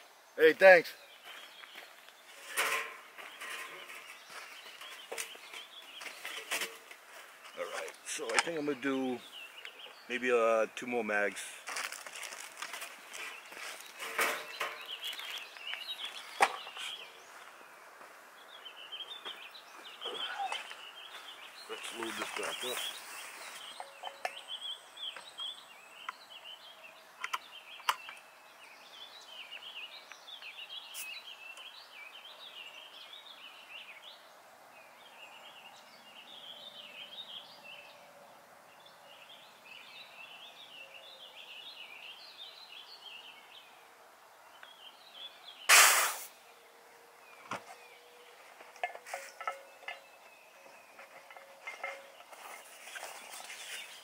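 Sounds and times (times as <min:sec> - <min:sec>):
birds chirping and singing: 0:00.4 - 0:45.7, 0:46.4 - 0:54.0
loud sharp sound: 0:45.7 - 0:46.3.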